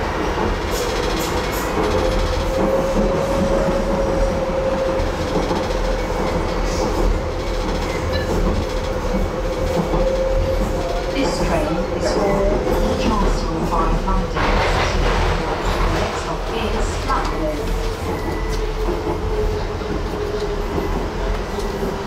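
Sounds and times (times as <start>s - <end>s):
train rumble and whine: 0.0s - 22.0s.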